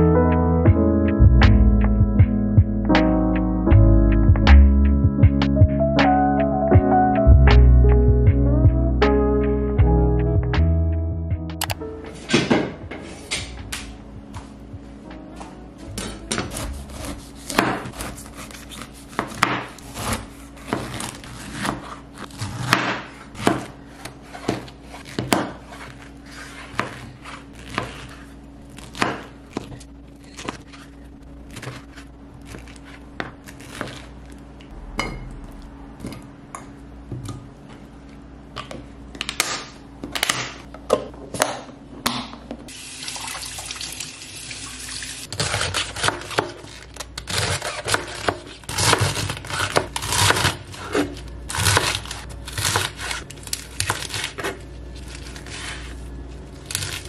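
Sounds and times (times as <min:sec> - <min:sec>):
knife chopping lettuce: 0:15.9 - 0:34.4, 0:45.3 - 0:57.0
knife cutting on cutting board: 0:16.0 - 0:29.8
tap water running: 0:42.7 - 0:45.3.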